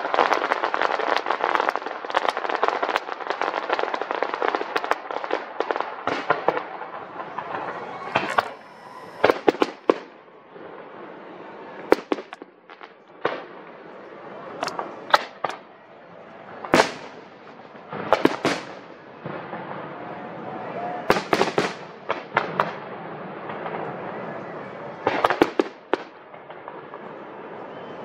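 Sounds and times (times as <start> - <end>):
fireworks crackling pops: 0.0 - 15.7, 16.3 - 28.0
fireworks bangs: 0.0 - 28.0.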